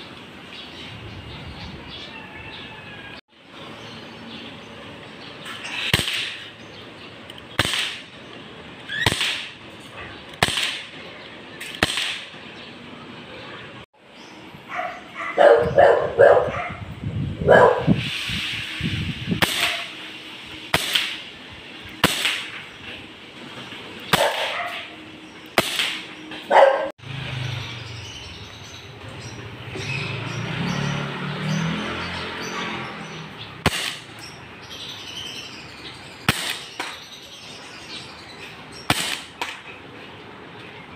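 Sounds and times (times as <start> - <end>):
airsoft pistol shots: 5.9 - 6.5, 7.6 - 8.1, 9.0 - 9.6, 10.4 - 11.0, 11.6 - 12.4, 19.4 - 19.9, 20.7 - 21.2, 22.0 - 22.5, 24.1 - 24.5, 25.6 - 26.1, 33.6 - 34.1, 36.3 - 37.0, 38.9 - 39.6
dog barking: 14.7 - 18.0, 24.2 - 24.9, 26.5 - 26.9.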